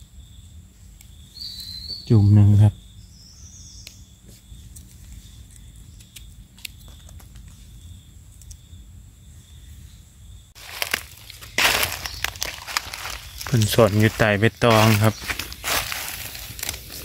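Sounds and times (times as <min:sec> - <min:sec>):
high insect trill: 0:00.0 - 0:17.0
crackling rustle of dry leaves: 0:10.6 - 0:17.0
rustling in dry leaf litter: 0:10.6 - 0:17.0.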